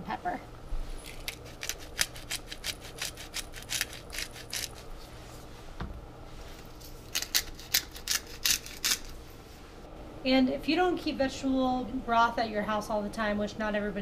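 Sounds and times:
pepper grinder grinding clicks: 1.0s - 4.8s, 7.1s - 9.1s.

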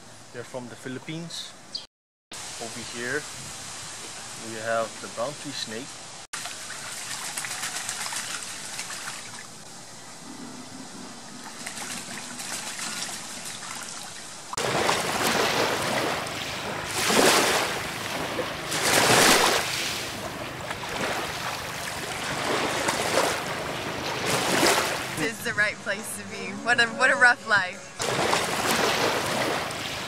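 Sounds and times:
wind: 0.0s - 30.0s
duck splashing water: 6.4s - 9.5s, 11.4s - 25.2s, 28.0s - 30.0s
surf on a beach: 14.6s - 30.0s.

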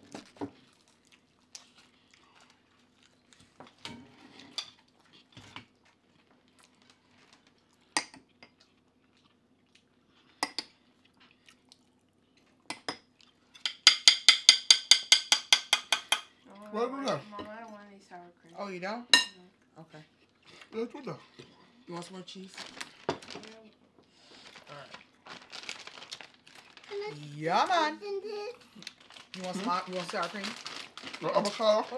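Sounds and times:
cutlery clinking on plates: 13.6s - 16.3s.

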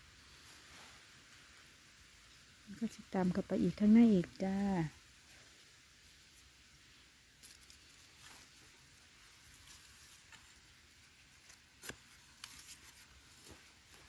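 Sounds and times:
dry soil scratching and crumbling: 2.7s - 14.0s.

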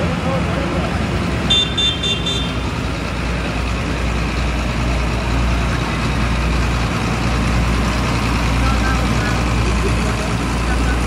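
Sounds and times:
tractor diesel engine running: 0.0s - 11.0s.

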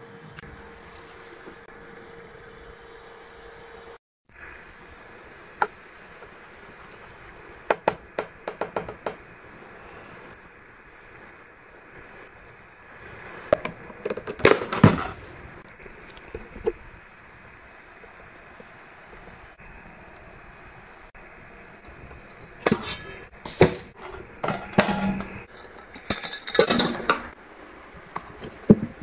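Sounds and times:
high electronic beeps: 10.4s - 13.0s.

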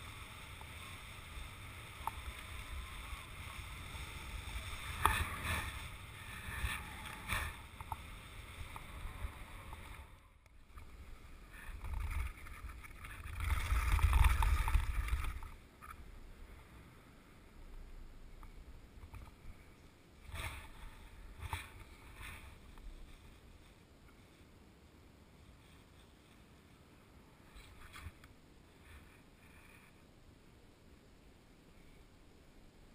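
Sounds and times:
skis hissing over snowy ice: 0.0s - 10.2s.

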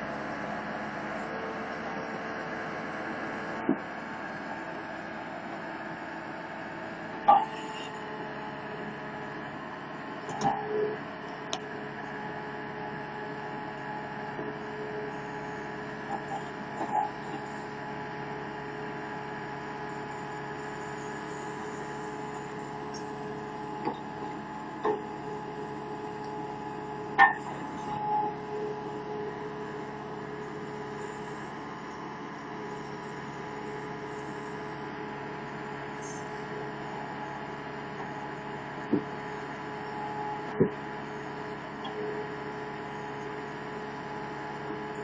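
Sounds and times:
loader engine droning with whine: 0.0s - 45.0s.

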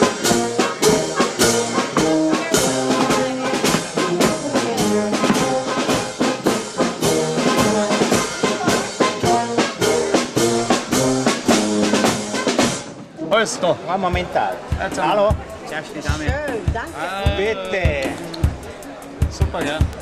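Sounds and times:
marching brass band playing: 0.0s - 13.2s.

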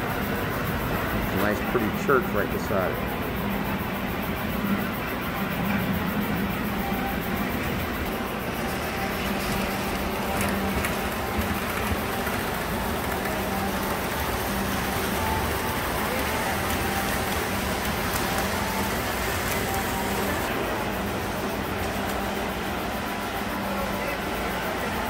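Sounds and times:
model train wheels rumbling: 5.6s - 22.8s.

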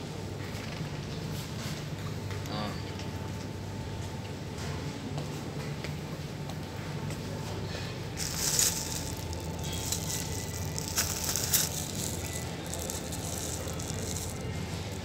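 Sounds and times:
ventilation hum: 0.0s - 15.0s
handling noise on microphone: 8.2s - 15.0s.

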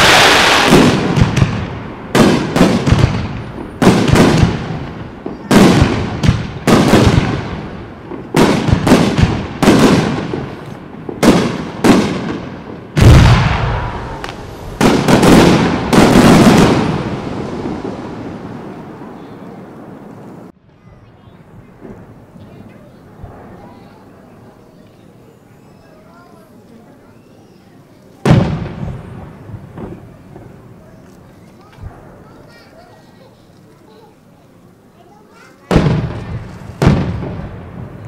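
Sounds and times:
firework bangs echoing: 0.0s - 20.5s, 28.2s - 31.0s, 35.6s - 38.0s.

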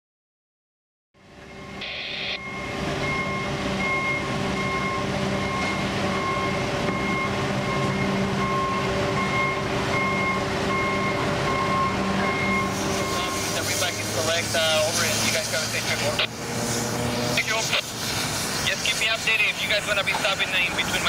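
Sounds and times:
diesel machinery running: 1.2s - 21.0s
backup alarm beeping: 1.4s - 13.8s.

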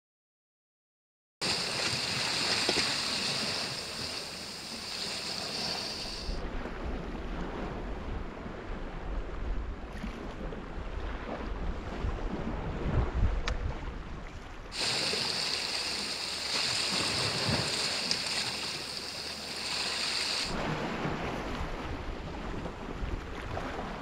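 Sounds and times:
sea surf washing on rocks: 1.4s - 6.6s, 14.7s - 22.5s
wind buffeting microphone: 1.4s - 24.0s.

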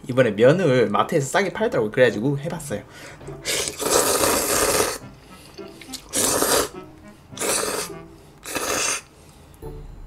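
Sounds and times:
loud slurping of noodles: 3.4s - 6.8s, 7.4s - 9.1s.

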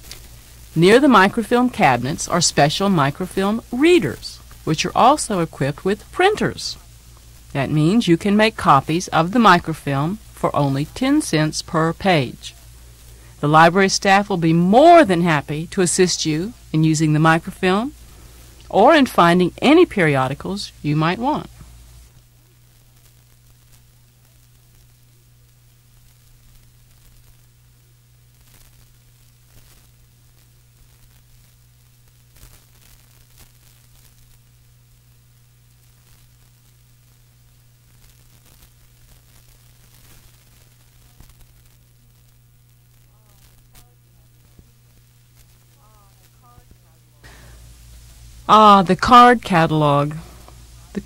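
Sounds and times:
low mains hum: 0.0s - 51.0s
tape hiss: 0.0s - 51.0s
faint voice: 43.0s - 44.8s, 45.7s - 47.4s.

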